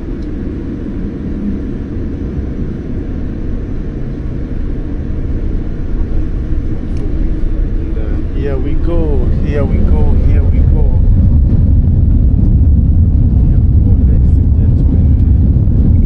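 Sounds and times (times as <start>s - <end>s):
jet airliner cabin rumble: 0.0s - 16.0s.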